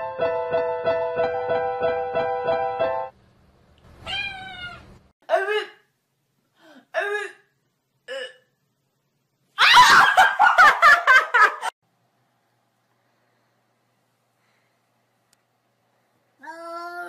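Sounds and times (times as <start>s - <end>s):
kitten meowing: 4.0s - 4.8s
woman laughing hard: 9.6s - 11.7s.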